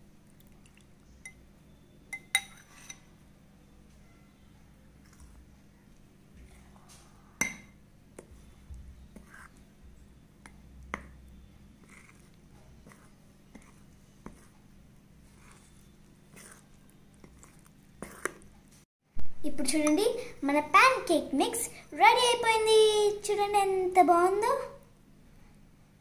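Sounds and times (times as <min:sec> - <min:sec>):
utensil scraping a bowl: 0:02.4 - 0:03.1, 0:08.2 - 0:09.7, 0:10.4 - 0:14.6, 0:15.2 - 0:18.5.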